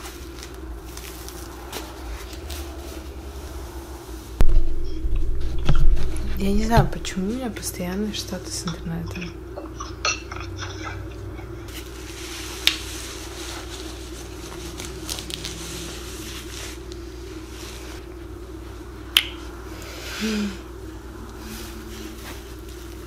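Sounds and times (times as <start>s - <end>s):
diaper and wipes rustling: 0.0s - 4.4s, 11.7s - 18.0s, 21.4s - 23.0s
steady low hum: 0.0s - 23.0s.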